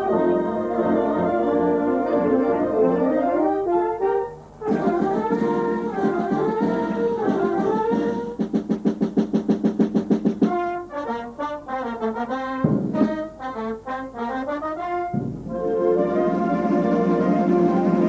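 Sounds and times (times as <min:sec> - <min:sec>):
wind band playing: 0:00.0 - 0:18.0.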